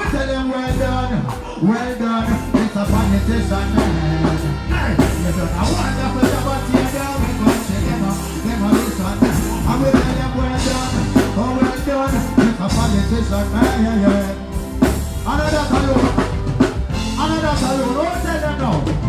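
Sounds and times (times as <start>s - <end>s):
man singing into microphone: 0.0s - 16.3s
live reggae band music: 0.0s - 19.0s.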